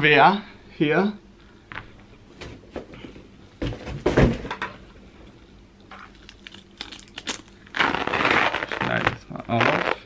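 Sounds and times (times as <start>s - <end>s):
rubber mat thump: 3.6s - 4.6s
rubber mat rustling scrape: 7.7s - 10.0s.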